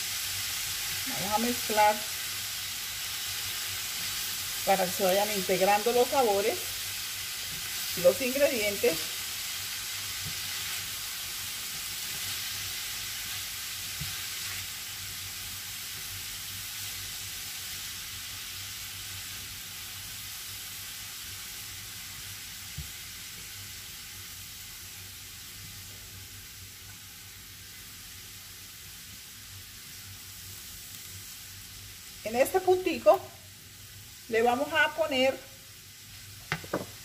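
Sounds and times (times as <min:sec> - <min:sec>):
food sizzling in a frying pan: 0:00.0 - 0:37.0
spatula stirring food: 0:03.2 - 0:14.9.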